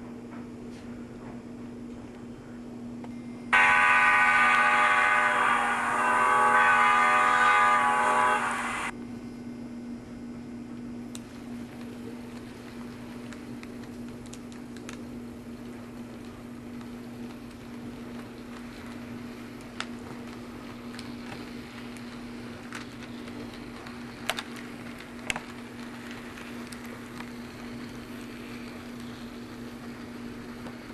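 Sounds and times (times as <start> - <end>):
steady low hum: 0.0 - 30.9
model train rolling on track: 3.6 - 8.9, 11.1 - 30.9
train horn: 3.6 - 8.9.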